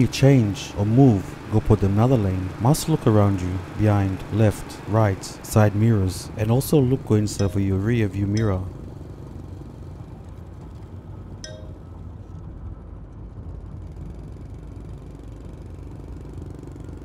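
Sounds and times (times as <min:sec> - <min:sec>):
vehicle engine and road rumble: 0:00.0 - 0:17.0.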